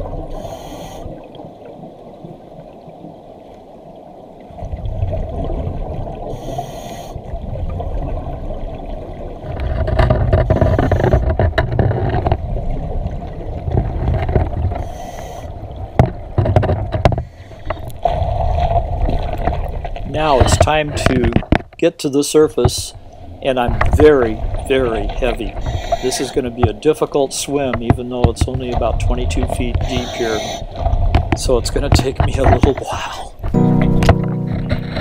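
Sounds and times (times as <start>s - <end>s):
underwater churning rumble: 7.3s - 21.6s, 22.4s - 35.0s
diver breathing with bubbles: 10.4s - 11.4s, 17.2s - 19.7s, 24.5s - 26.6s, 29.7s - 31.4s.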